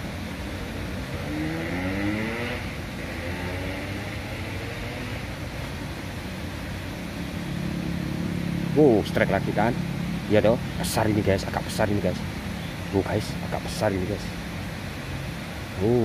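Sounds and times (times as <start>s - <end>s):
steady background hiss: 0.0s - 16.0s
vehicle engine accelerating: 0.8s - 5.6s.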